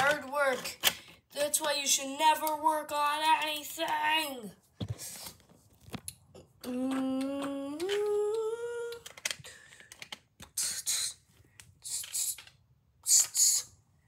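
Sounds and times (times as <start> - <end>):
plastic bricks scratching: 0.0 - 2.7, 8.9 - 13.5
person humming: 6.4 - 9.2.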